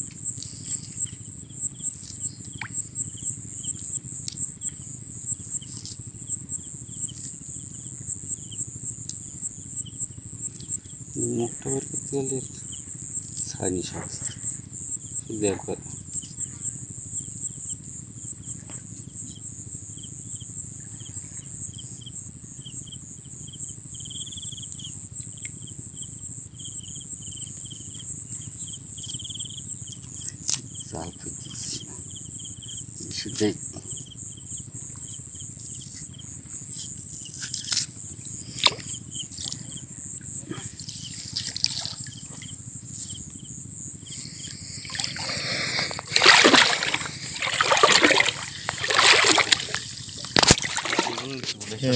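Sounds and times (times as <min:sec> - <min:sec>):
faint repeated chirping: 0:00.0 - 0:46.2
high-pitched insect drone: 0:00.0 - 0:51.9
fishing net rustling: 0:44.8 - 0:51.9.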